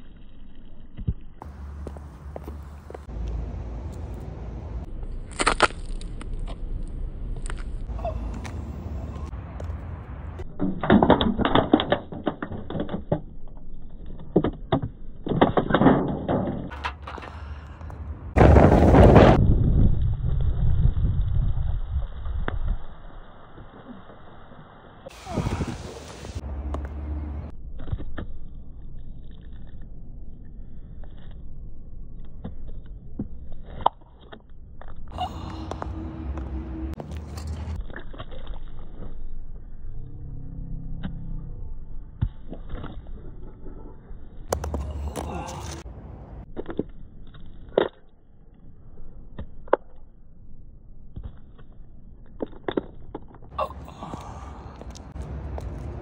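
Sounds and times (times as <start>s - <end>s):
low rumble with faint hum: 0.0s - 10.6s, 26.1s - 56.0s
drink can crunching: 5.2s - 6.5s.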